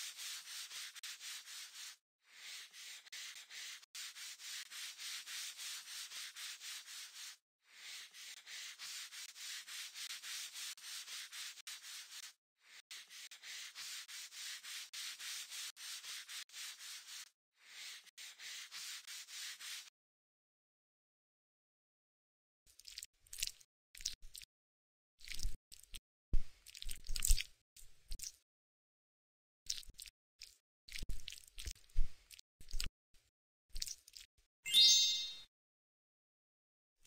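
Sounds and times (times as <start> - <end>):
hissy rubbing strokes: 0.0 - 19.9.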